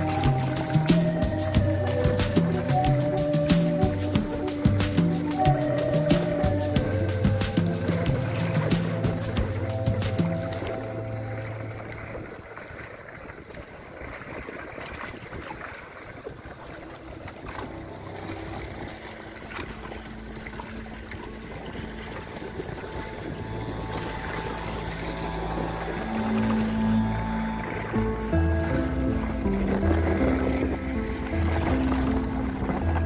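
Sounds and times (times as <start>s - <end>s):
sea water lapping and splashing: 0.0s - 33.0s
wind noise on microphone: 0.0s - 33.0s
faint background music: 16.7s - 33.0s.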